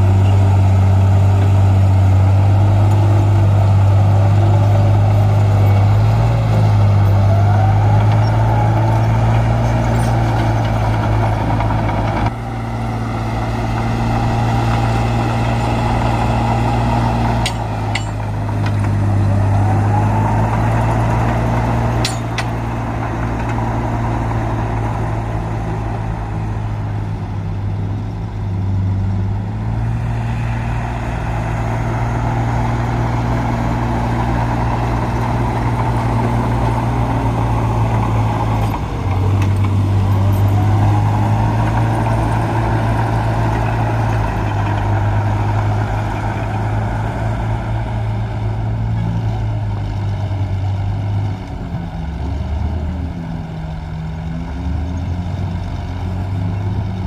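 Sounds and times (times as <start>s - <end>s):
diesel engine running: 0.0s - 57.0s
rising whine: 12.3s - 20.9s.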